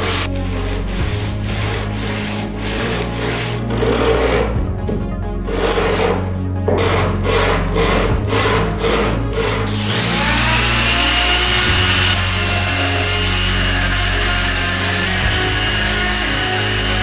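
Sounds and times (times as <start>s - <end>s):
hammer rubbed on sandpaper: 0.0s - 4.6s
rotary tool whining: 0.0s - 17.0s.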